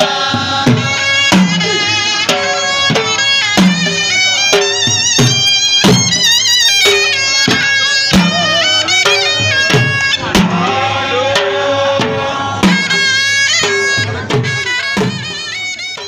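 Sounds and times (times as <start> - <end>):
drums beating dance rhythm: 0.0 - 16.0
double-reed pipe melody: 0.8 - 10.4, 12.7 - 16.0.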